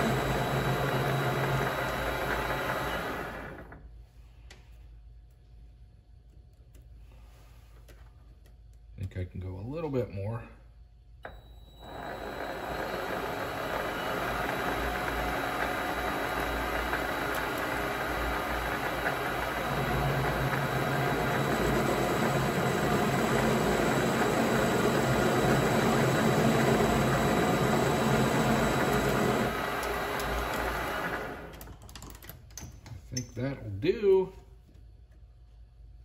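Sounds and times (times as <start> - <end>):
lathe running: 0.0 - 3.8, 11.3 - 31.6.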